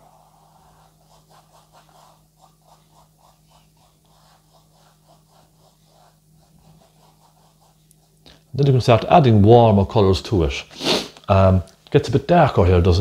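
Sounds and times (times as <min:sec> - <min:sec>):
paint brush strokes on canvas: 0:00.0 - 0:09.1.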